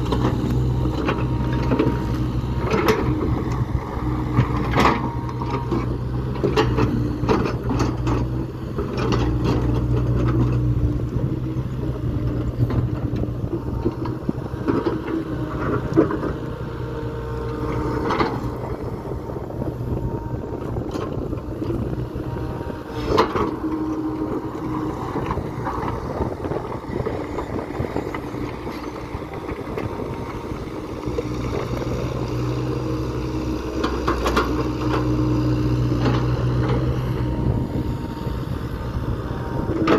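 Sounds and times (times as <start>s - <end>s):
excavator diesel engine: 0.0s - 39.9s
hydraulic whine: 17.0s - 32.3s, 33.8s - 39.9s.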